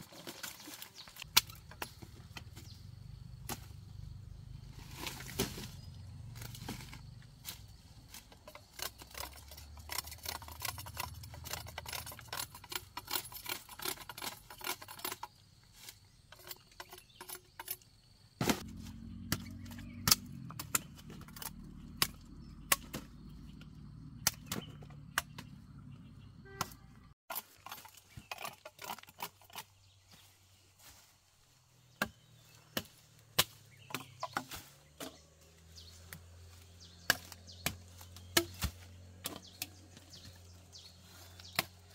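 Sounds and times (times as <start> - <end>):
dry leaves rustling: 0.0 - 14.7, 29.9 - 41.9
chopping strikes and snaps: 19.3 - 20.9.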